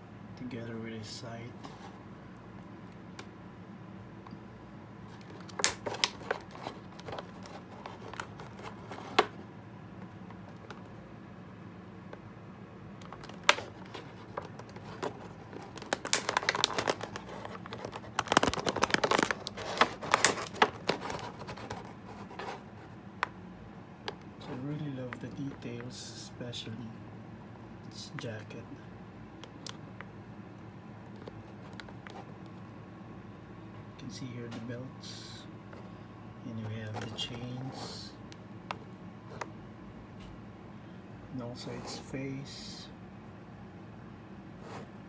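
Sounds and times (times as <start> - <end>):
plastic blister tray crinkling: 5.1 - 9.4, 13.0 - 23.0, 31.1 - 32.5.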